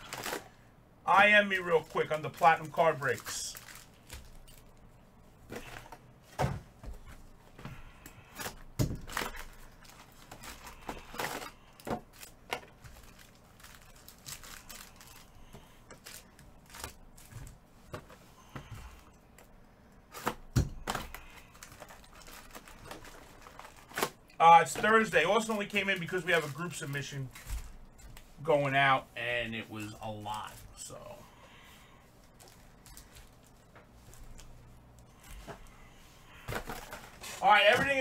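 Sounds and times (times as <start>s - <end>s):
wrappers tearing and crinkling: 0.0s - 4.9s, 8.2s - 17.6s, 20.1s - 27.8s, 32.2s - 34.6s, 36.4s - 38.0s.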